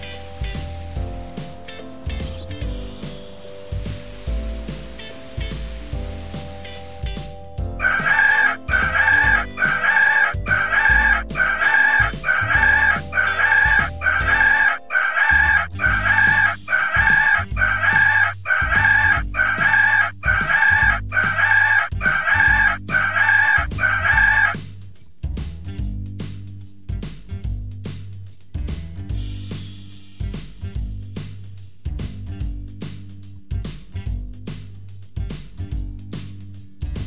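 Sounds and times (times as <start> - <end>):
low background music: 0.0 - 37.0
poultry call: 7.8 - 24.6.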